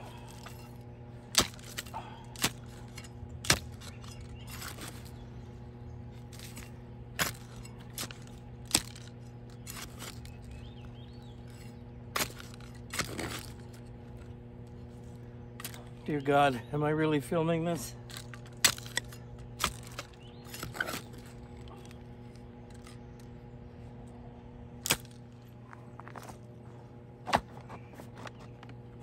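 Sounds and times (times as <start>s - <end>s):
shovel scraping soil: 0.0s - 5.2s, 6.2s - 10.6s, 11.4s - 13.9s, 18.2s - 22.0s
steady low hum: 0.0s - 29.0s
shovel striking stony soil: 0.2s - 5.2s, 6.2s - 10.5s, 11.4s - 13.9s, 18.1s - 22.0s, 24.8s - 25.3s.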